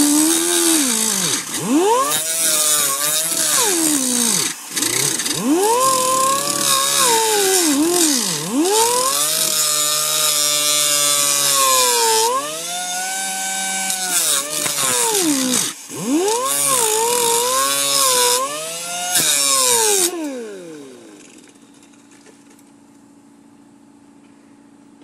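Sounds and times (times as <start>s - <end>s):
grinder motor whining: 0.0s - 21.7s
faint hum: 20.6s - 25.0s.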